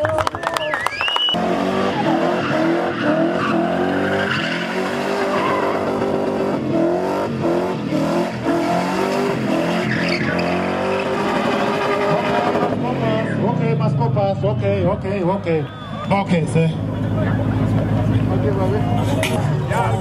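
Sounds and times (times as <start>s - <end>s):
car engine revving high: 1.3s - 14.2s
tyres screeching: 1.9s - 6.4s, 9.0s - 13.5s.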